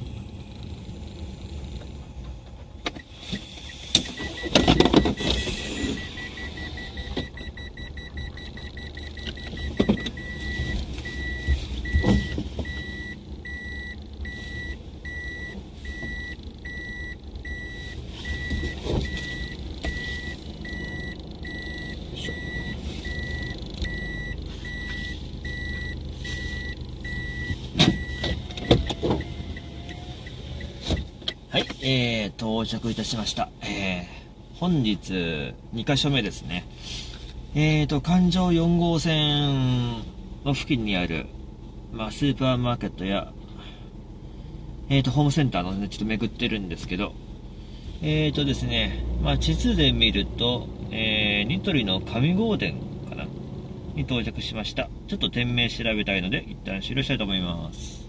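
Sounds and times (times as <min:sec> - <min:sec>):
engine and tyre rumble: 0:00.0 - 0:58.0
parking sensor beeping: 0:02.8 - 0:31.7.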